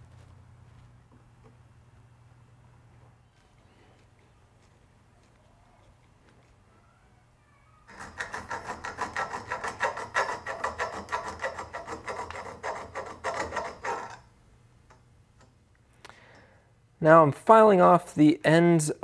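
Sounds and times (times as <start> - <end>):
hand file scraping metal: 7.9 - 14.3.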